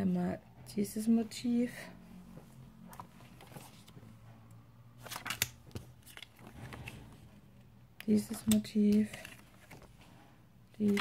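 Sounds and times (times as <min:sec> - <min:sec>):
plastic clicks and crinkles: 0:08.0 - 0:10.1, 0:10.7 - 0:11.0.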